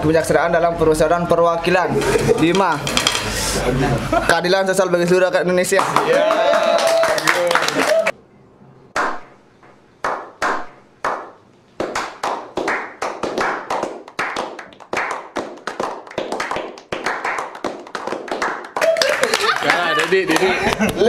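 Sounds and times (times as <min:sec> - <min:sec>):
group clapping: 0:05.7 - 0:08.2, 0:09.0 - 0:09.3, 0:10.0 - 0:21.0.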